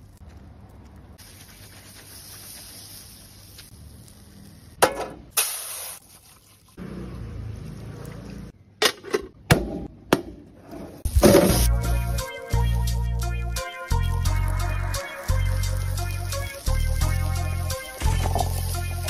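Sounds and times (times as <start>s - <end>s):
greens sizzling: 1.2s - 4.8s, 11.0s - 19.0s.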